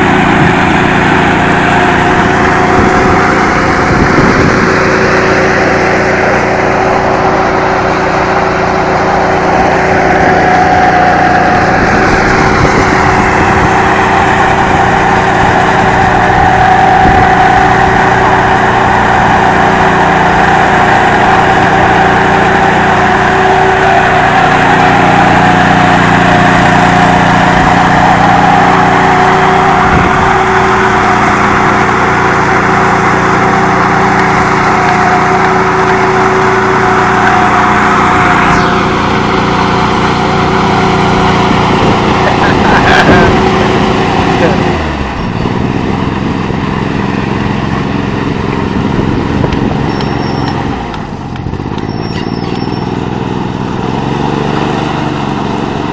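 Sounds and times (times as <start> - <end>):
power trowel engine droning: 0.0 - 55.9.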